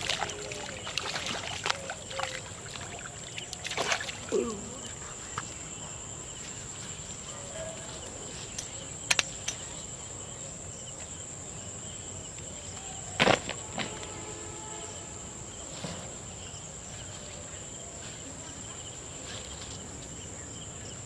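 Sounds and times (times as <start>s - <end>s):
insects droning: 0.0s - 21.0s
sharp clicks: 8.6s - 9.6s.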